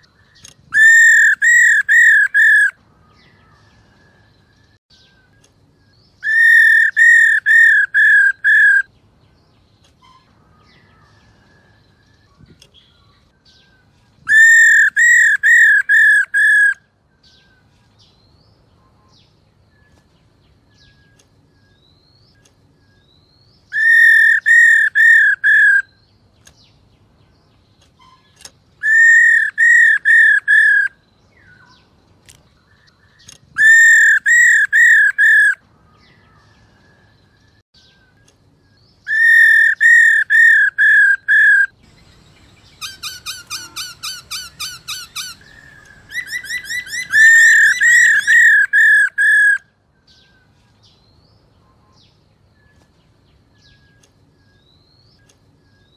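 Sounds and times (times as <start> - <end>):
faint bird chirps: 0.0 - 55.9
bird whistled calls: 0.4 - 2.8, 6.2 - 8.9, 14.3 - 16.8, 23.7 - 26.0, 28.0 - 31.7, 33.6 - 35.6, 39.0 - 49.7.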